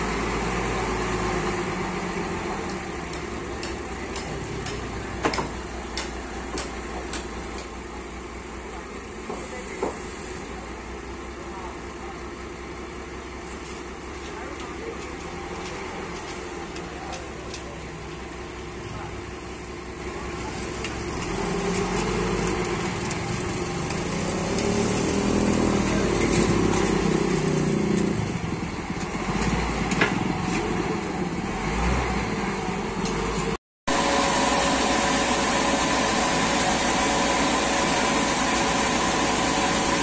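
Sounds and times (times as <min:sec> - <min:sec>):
forklift engine running: 0:00.0 - 0:40.0.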